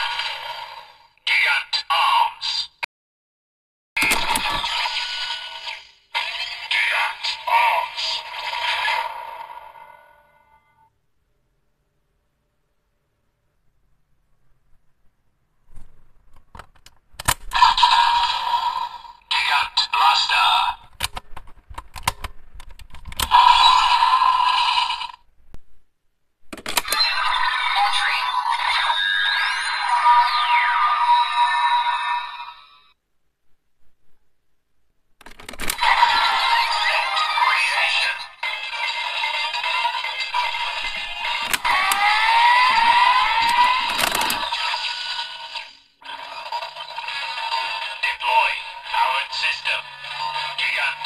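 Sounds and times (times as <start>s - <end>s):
toy electronic sound effect: 0.0s - 0.9s, 4.0s - 9.8s, 17.5s - 20.7s, 23.2s - 25.2s, 26.8s - 33.0s, 35.7s - 51.0s
plastic toy clicks and snaps: 43.4s - 44.5s.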